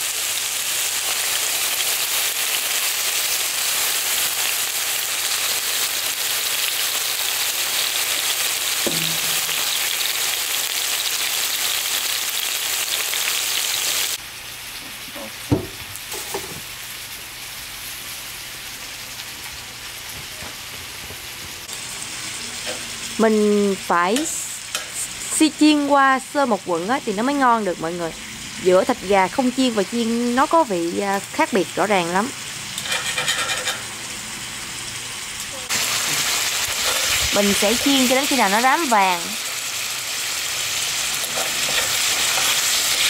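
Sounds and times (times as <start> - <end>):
chicken sizzling in hot oil: 0.0 - 43.0
sharp knocks: 8.8 - 9.8.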